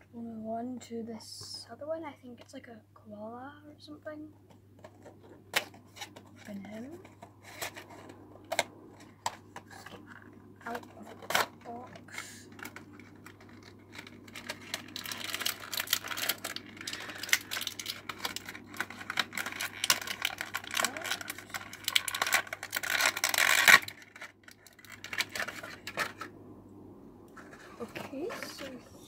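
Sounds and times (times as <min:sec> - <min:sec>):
crinkly packaging tearing: 0:05.0 - 0:26.3.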